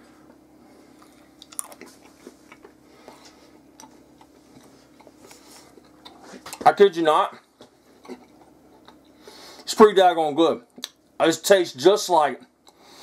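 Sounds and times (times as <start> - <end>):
person chewing jerky: 0.9 - 6.7, 7.9 - 9.3.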